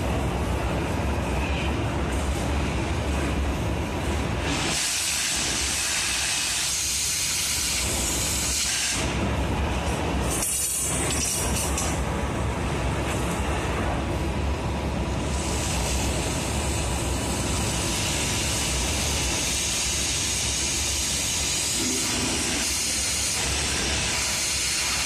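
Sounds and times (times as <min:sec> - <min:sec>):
cutting torch hissing: 0:04.4 - 0:09.2, 0:15.3 - 0:25.0.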